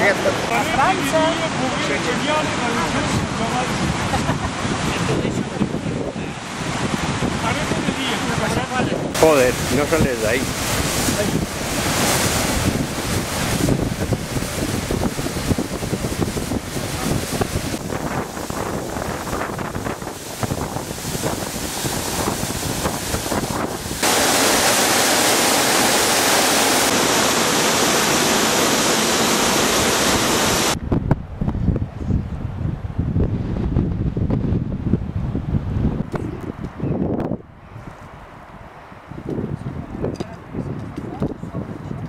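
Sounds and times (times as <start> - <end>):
waterfall rushing: 0.0 - 30.8
wind buffeting microphone: 0.2 - 24.5, 29.8 - 42.0.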